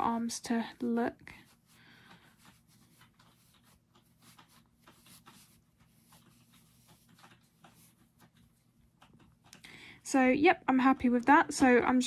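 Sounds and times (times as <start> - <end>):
fingers rustling soft stuffing: 0.0 - 9.6.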